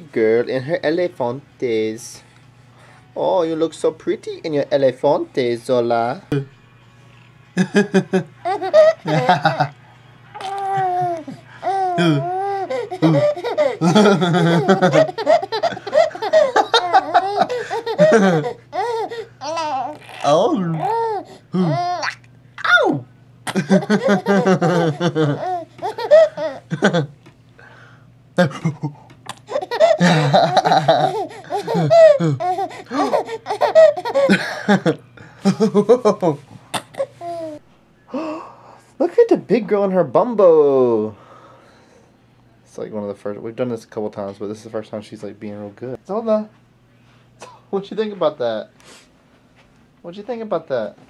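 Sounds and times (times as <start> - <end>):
infant laughing: 7.7 - 9.7, 10.4 - 22.2, 23.5 - 27.1, 28.4 - 34.9, 36.9 - 37.6
baby cooing and babbling: 10.4 - 13.8, 18.0 - 22.2.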